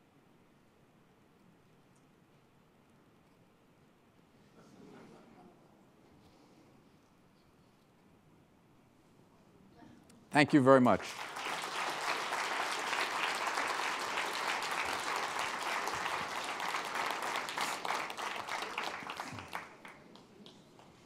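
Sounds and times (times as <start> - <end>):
audience applauding: 10.4 - 21.0.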